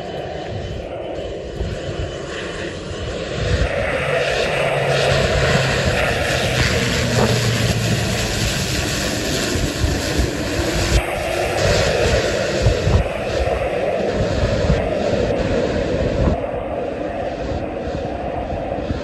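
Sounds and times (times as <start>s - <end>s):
turboprop plane landing: 0.0s - 19.0s.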